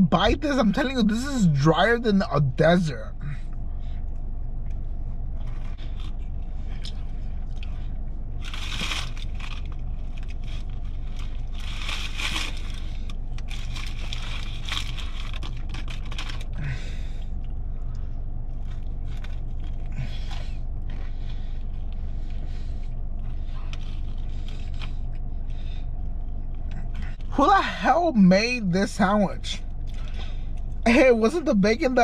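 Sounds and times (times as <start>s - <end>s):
low hum: 0.0s - 32.0s
chewing and crunching: 3.4s - 27.3s, 29.7s - 30.8s.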